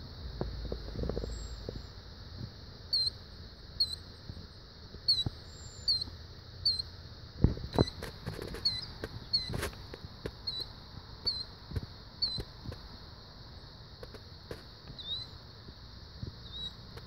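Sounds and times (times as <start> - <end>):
bird peeping: 2.9 - 3.2, 3.8 - 4.2, 5.0 - 6.9, 7.7 - 11.6, 12.2 - 12.5, 14.9 - 15.4, 16.4 - 17.0.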